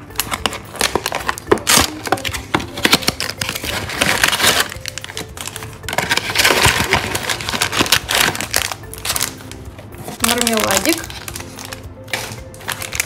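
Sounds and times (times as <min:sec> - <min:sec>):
cardboard box tearing: 0:00.8 - 0:05.2.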